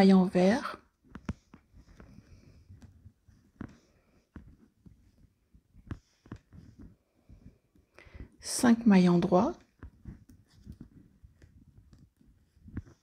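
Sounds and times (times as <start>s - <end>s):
knitting needles clicking: 0.9s - 7.0s.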